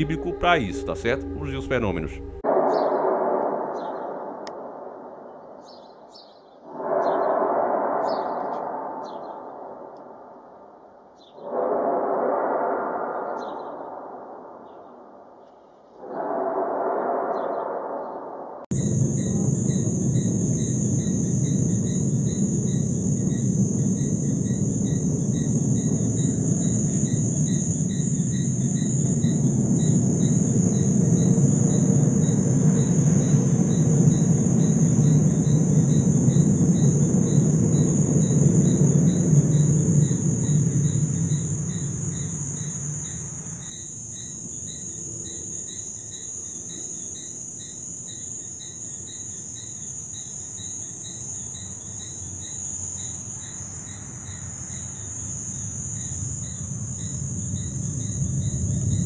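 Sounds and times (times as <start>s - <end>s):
low rumbling drone: 0.0s - 3.2s, 18.7s - 43.7s
crickets chirping: 0.0s - 59.0s.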